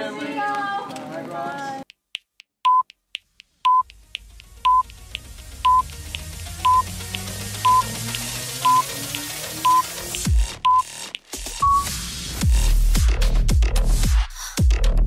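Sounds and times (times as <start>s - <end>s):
clock ticking: 1.8s - 11.9s
short electronic beeps: 2.7s - 2.9s, 3.7s - 3.9s, 4.6s - 4.9s, 5.6s - 5.8s, 6.6s - 6.9s, 7.6s - 7.9s, 8.6s - 9.0s, 9.6s - 9.9s, 10.6s - 10.9s, 11.6s - 11.9s
synth riser: 3.9s - 12.4s.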